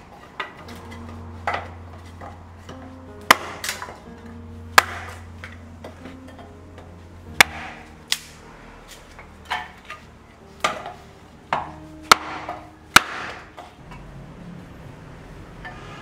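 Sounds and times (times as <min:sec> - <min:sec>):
hatchet chopping kindling on wood: 0:03.3 - 0:03.9, 0:04.8 - 0:05.2, 0:07.4 - 0:08.4, 0:11.5 - 0:13.5.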